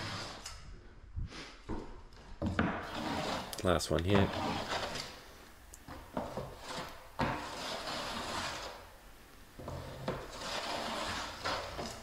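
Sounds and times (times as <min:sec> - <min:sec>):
drywall tool scraping corner: 0:00.0 - 0:00.6, 0:02.4 - 0:05.2, 0:05.9 - 0:08.9, 0:09.6 - 0:12.0.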